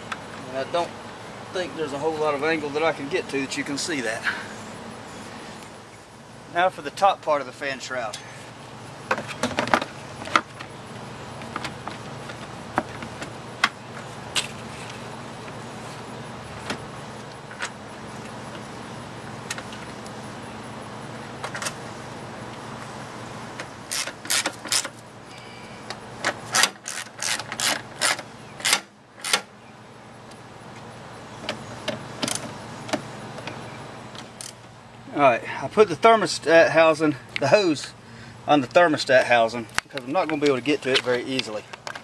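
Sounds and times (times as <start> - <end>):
steady low hum: 0.0 - 42.0.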